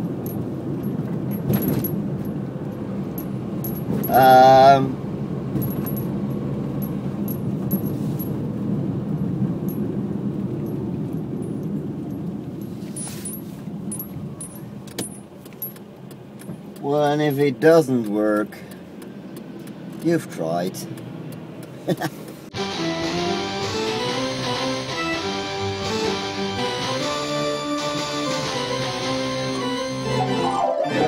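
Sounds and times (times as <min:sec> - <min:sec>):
car engine and road noise: 0:00.0 - 0:31.0
keys jingling: 0:00.2 - 0:04.4, 0:05.6 - 0:08.4, 0:10.6 - 0:17.6.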